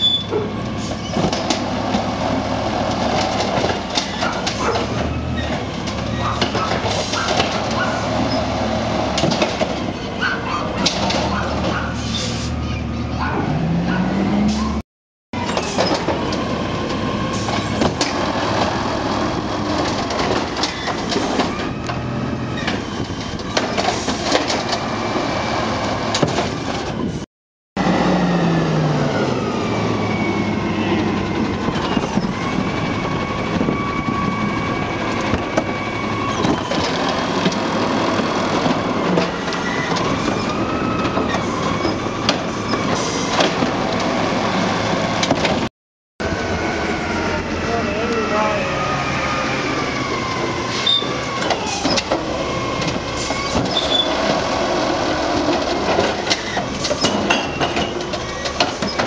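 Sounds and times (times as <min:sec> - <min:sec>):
clanks and knocks of cart: 0:00.0 - 0:02.1, 0:02.9 - 0:08.4, 0:09.1 - 0:11.9, 0:19.6 - 0:24.9, 0:35.1 - 0:44.2, 0:45.1 - 0:45.7, 0:50.4 - 0:59.0
hydraulics whining: 0:15.4 - 0:27.2, 0:27.8 - 0:59.0
garbage truck engine running: 0:27.8 - 0:59.0.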